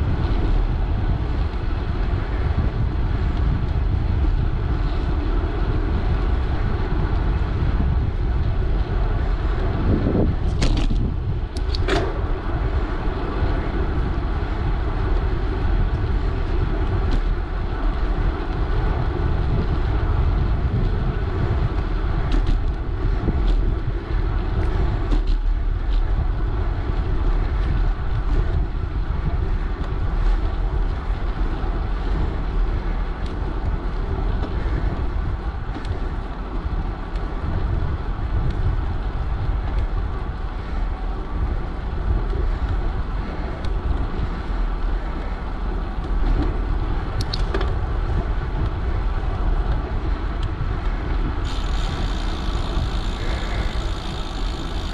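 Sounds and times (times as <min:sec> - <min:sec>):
tyres rolling on asphalt: 0:00.0 - 0:54.9
wind rushing on microphone: 0:00.0 - 0:54.9.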